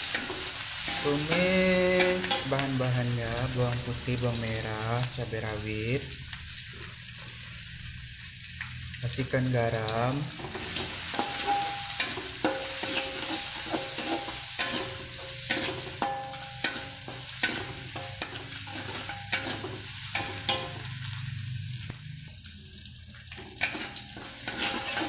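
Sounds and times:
metal spatula scraping wok: 0.0 - 4.8, 10.3 - 21.9, 23.3 - 25.0
wok ringing: 0.0 - 6.0, 9.8 - 22.6, 23.2 - 25.0
food sizzling in hot oil: 0.0 - 25.0.

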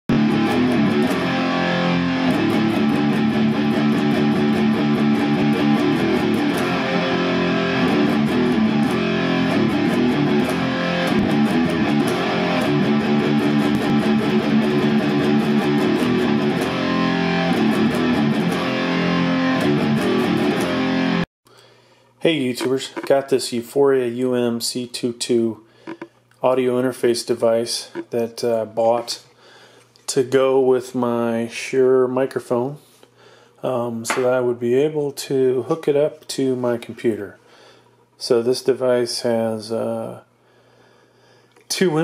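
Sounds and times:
electric guitar music with beat: 0.1 - 21.3.

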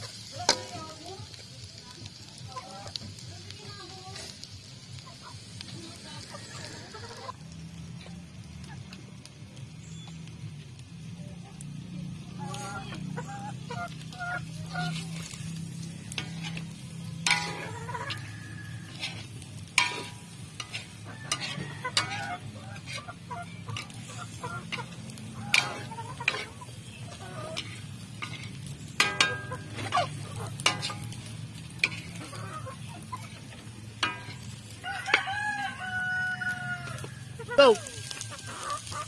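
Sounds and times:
meat sizzling: 0.0 - 39.0
chickens clucking: 2.0 - 3.3, 4.2 - 9.7, 11.0 - 39.0
spatula scraping a steel wok: 13.8 - 35.2.

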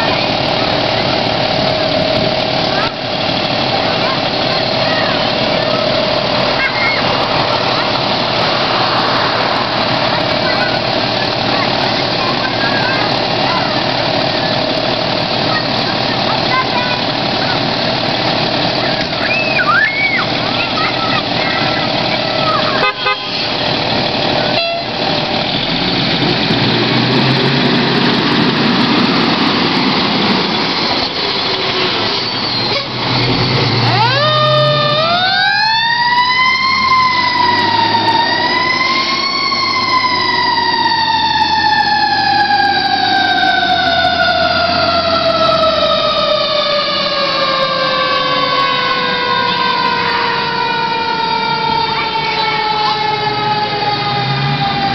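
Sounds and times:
fire engine engine running: 0.0 - 54.9
siren wailing: 18.7 - 23.2, 32.0 - 54.9.

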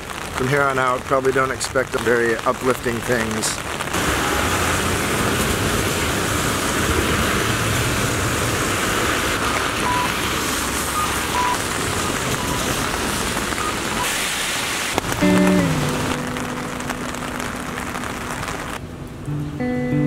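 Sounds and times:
tyres hissing on wet road: 0.0 - 18.8
steady rain falling: 0.0 - 20.0.

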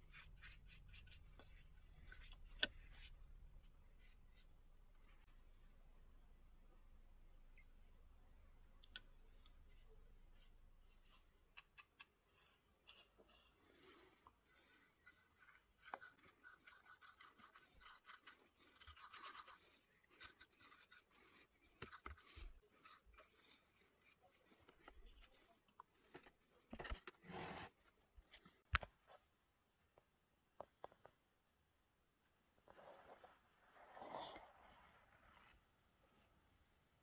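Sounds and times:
paintbrush stroking on wood: 0.0 - 4.5, 12.3 - 25.5.

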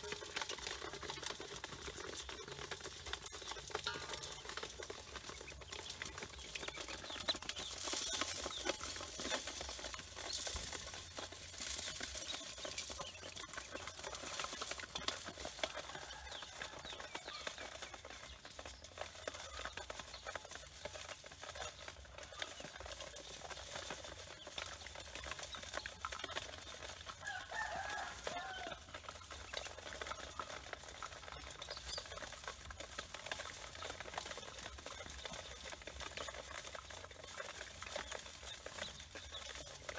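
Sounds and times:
ducklings peeping: 0.3 - 39.9.

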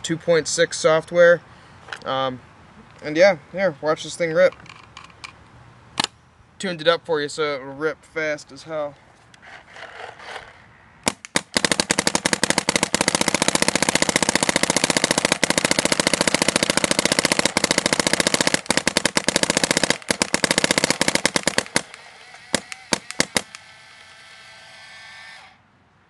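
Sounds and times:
paintball marker firing rapidly: 11.1 - 23.6.

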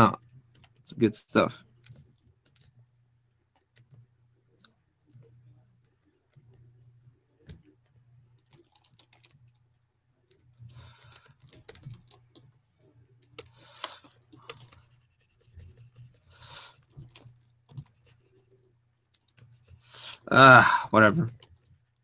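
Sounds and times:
low steady hum: 0.0 - 22.0
keyboard clicking and tapping: 7.4 - 9.6, 11.2 - 12.5.

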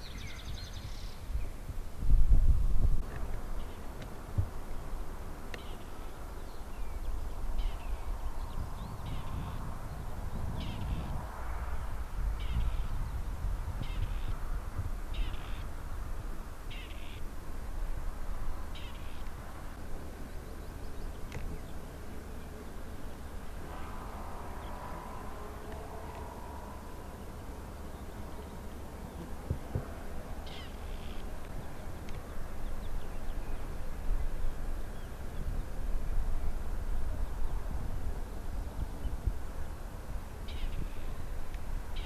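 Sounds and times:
faint steady hum: 0.0 - 42.0
bird calling: 5.5 - 9.6, 15.1 - 15.7, 16.7 - 17.3, 18.7 - 19.3, 30.4 - 31.3.

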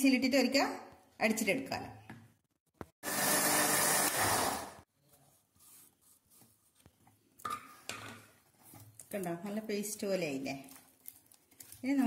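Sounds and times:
mixer grinder grinding: 3.0 - 4.8.

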